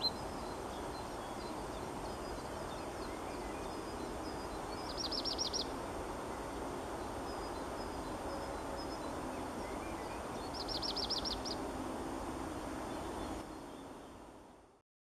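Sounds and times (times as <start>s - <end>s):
low background noise: 0.0s - 14.8s
bird singing high notes: 2.9s - 5.7s, 8.9s - 11.6s.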